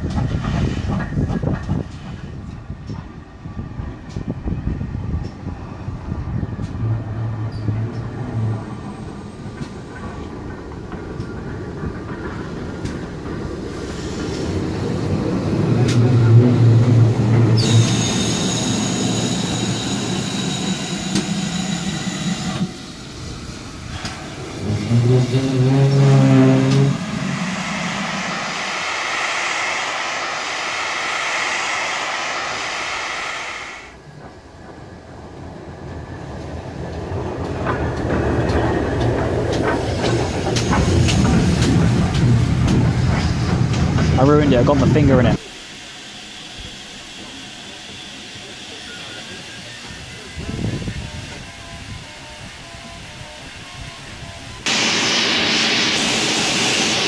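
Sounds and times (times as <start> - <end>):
wind rumble on microphone: 0.0 - 8.0
steam locomotive rolling: 0.0 - 57.0.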